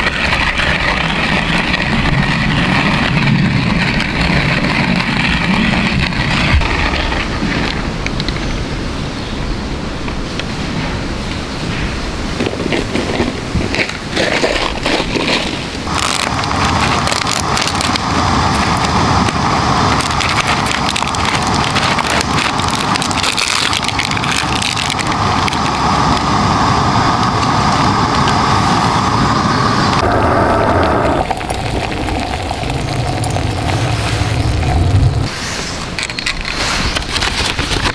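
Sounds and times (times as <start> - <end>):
water boiling: 15.9 - 35.3.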